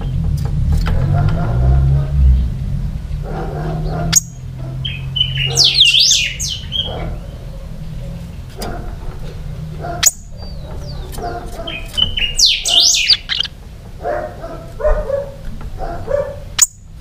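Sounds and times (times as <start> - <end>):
bird chattering notes: 3.9 - 9.0, 9.8 - 13.6, 16.4 - 17.0
caged bird singing whistled notes: 4.2 - 7.0, 11.7 - 13.5.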